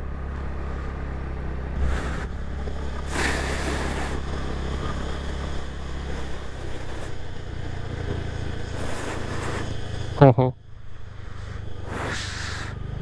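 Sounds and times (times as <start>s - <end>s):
scooter engine running: 0.0s - 13.0s
wind and road noise: 0.0s - 13.0s
brief hiss rushes: 3.0s - 4.2s, 11.4s - 12.8s.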